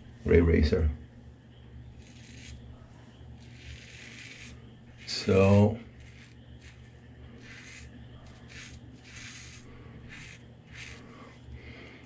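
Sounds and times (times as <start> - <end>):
razor scraping stubble: 2.0 - 2.8, 3.4 - 11.2.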